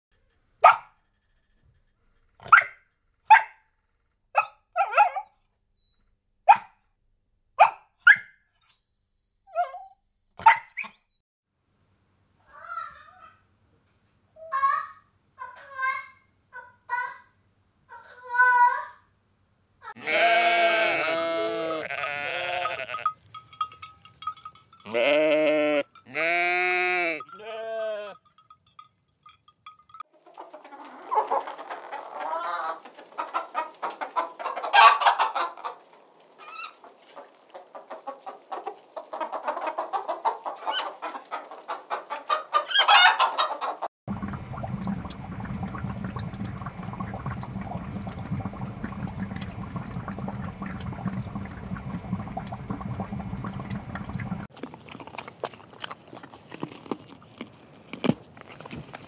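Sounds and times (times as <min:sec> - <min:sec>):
dogs barking: 0:00.6 - 0:01.0, 0:02.4 - 0:03.6, 0:04.4 - 0:05.4, 0:10.4 - 0:10.9
dog whining yip: 0:02.4 - 0:03.6, 0:04.4 - 0:06.7, 0:07.6 - 0:11.1
sheep bleating: 0:20.0 - 0:23.1, 0:24.9 - 0:28.2.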